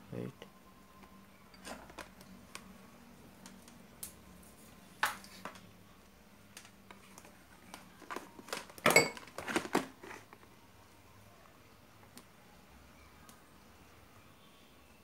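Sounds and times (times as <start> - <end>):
plastic clatter: 7.7 - 10.4.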